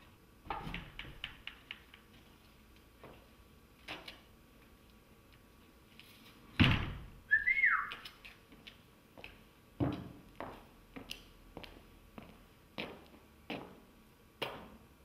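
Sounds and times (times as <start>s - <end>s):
wooden door shutting with thud: 6.6s - 7.1s.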